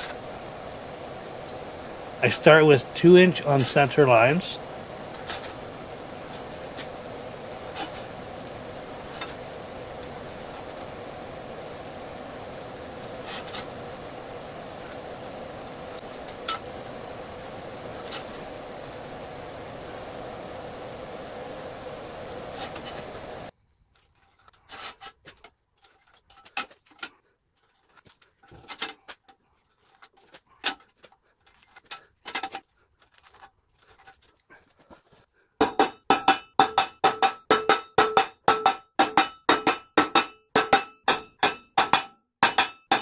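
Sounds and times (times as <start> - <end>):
steady hiss: 0.0 - 43.0
hammer striking metal punch: 35.6 - 43.0
taps and scrapes on metal plate: 35.6 - 43.0.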